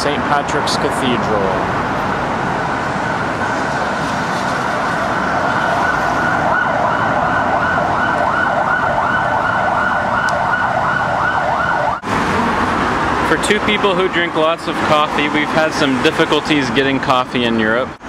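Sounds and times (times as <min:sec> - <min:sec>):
low traffic rumble: 0:00.0 - 0:18.0
emergency siren yelping: 0:01.8 - 0:13.3.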